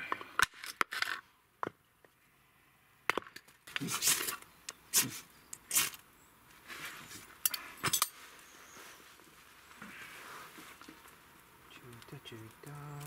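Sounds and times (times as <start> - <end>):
soft rustle: 3.7 - 13.0.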